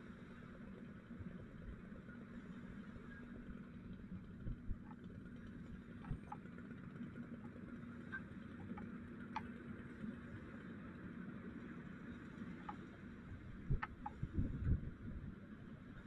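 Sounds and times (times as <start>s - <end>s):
low engine hum: 0.0s - 16.0s
light ticks: 7.4s - 9.7s, 12.4s - 12.9s.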